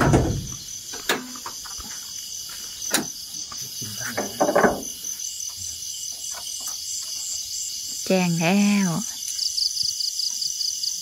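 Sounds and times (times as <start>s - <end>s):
rustling knocks: 0.0s - 2.0s, 4.0s - 5.0s
crickets chirping: 0.0s - 11.0s.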